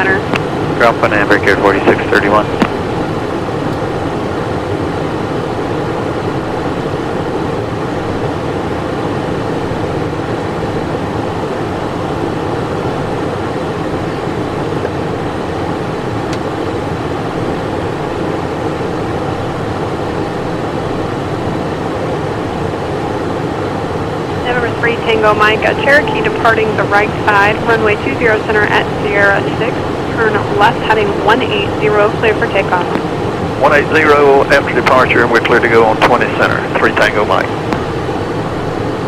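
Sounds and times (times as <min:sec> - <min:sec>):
jet engines humming: 0:00.0 - 0:39.0.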